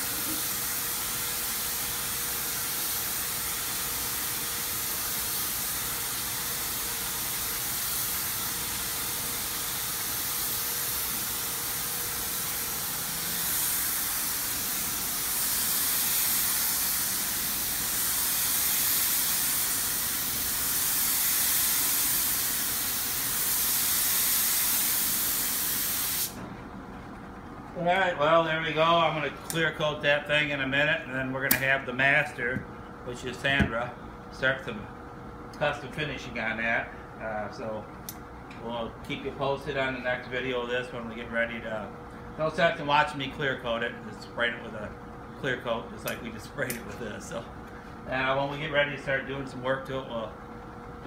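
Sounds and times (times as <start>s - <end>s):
spray gun hissing: 0.0s - 26.4s.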